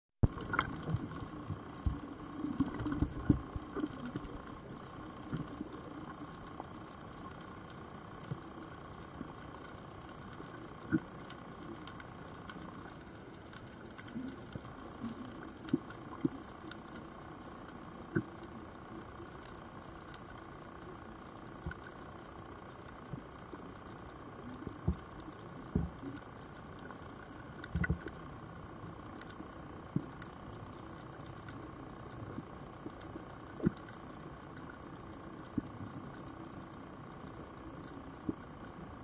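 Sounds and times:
sharp clicks and crackles: 0.2s - 39.0s
underwater hiss: 0.3s - 18.7s.

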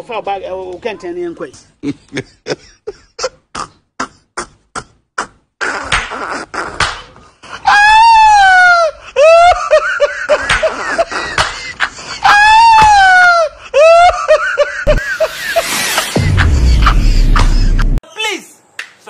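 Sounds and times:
man laughing hysterically: 1.8s - 3.5s, 7.5s - 18.0s
low rumble: 15.5s - 18.0s.

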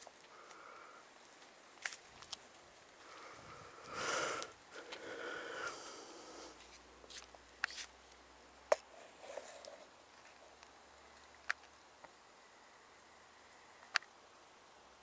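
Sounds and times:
breathing close to microphone: 3.0s - 6.6s.

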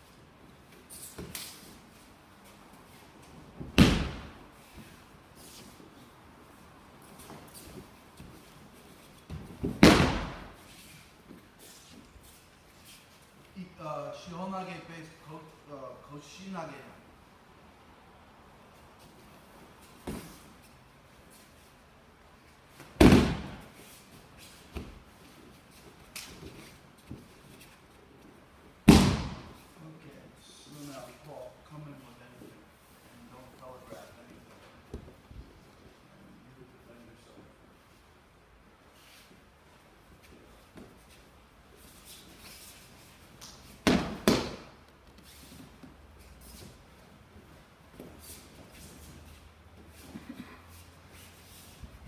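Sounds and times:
loud slaps on a mat: 3.6s - 4.4s, 9.3s - 10.6s, 22.8s - 23.7s, 28.8s - 29.6s, 43.4s - 44.8s.

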